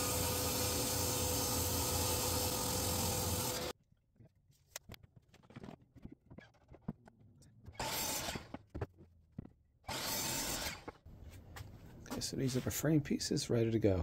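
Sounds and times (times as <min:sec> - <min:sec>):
miter saw cutting wood: 0:00.0 - 0:03.7, 0:07.8 - 0:08.5, 0:09.9 - 0:10.9.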